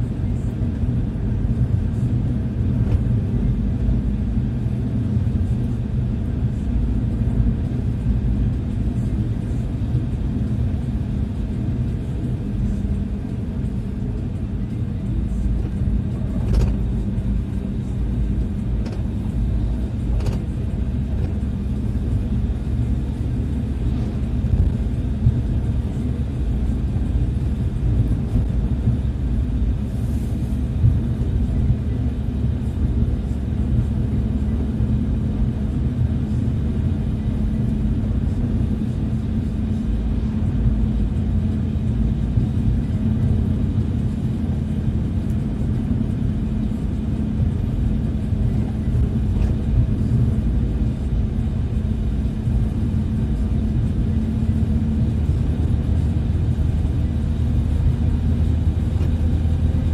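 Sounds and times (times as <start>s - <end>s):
engine and road rumble: 0.0s - 59.9s.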